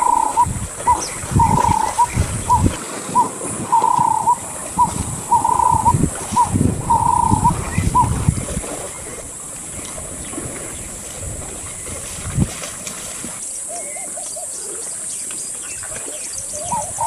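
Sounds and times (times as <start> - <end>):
bird calling: 0.0 - 9.2, 13.6 - 17.0
wind rumbling on microphone: 0.0 - 13.4, 15.6 - 17.0
water: 0.0 - 17.0.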